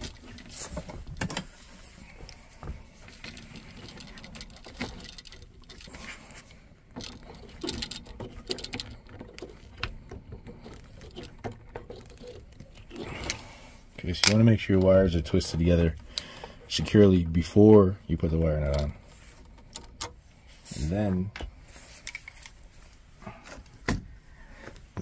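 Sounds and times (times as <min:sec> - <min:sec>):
metal pliers clicking on wires: 0:14.1 - 0:14.9.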